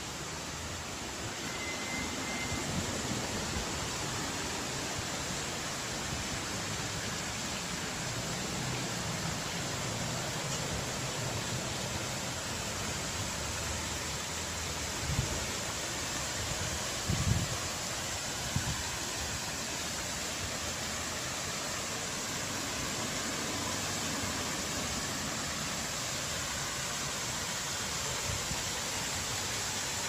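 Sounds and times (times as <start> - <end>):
rushing hiss of outdoor ambience: 0.0 - 30.0
faint high tone: 1.2 - 2.9.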